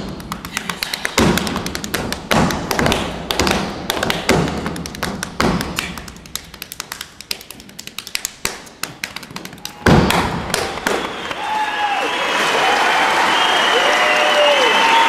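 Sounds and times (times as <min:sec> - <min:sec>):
hand slaps and claps on body: 0:00.3 - 0:11.1.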